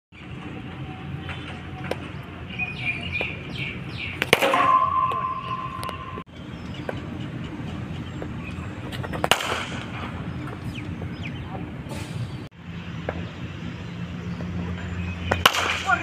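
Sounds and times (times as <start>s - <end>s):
cricket bat striking ball: 4.2s - 6.2s
steady high tone: 4.4s - 6.3s.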